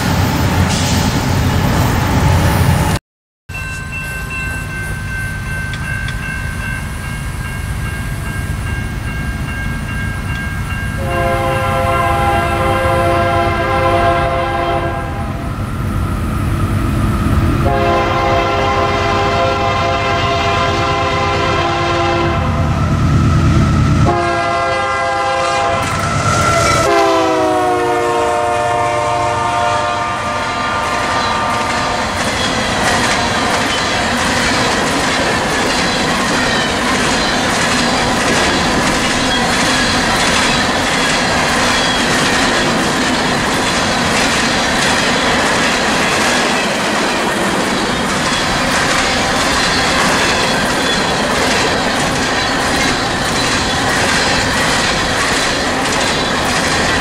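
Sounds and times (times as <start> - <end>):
train rumble: 0.0 - 3.0, 3.6 - 57.0
locomotive horn blasts: 11.0 - 15.4, 17.6 - 22.8, 24.0 - 32.1.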